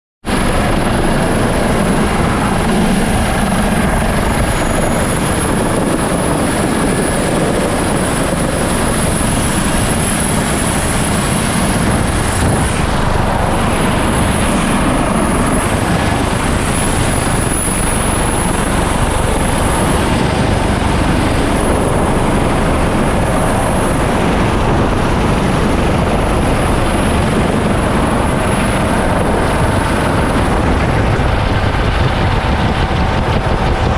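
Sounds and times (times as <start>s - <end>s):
helicopter rotor and turbine noise: 0.2s - 33.9s
high whine: 0.3s - 33.9s.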